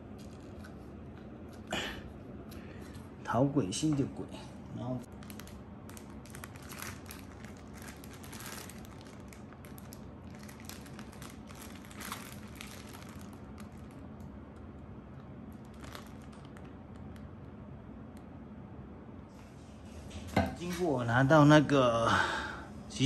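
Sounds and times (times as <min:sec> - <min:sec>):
plastic bag crinkling: 0:00.0 - 0:01.0, 0:05.0 - 0:17.3
low steady hum: 0:00.0 - 0:23.0.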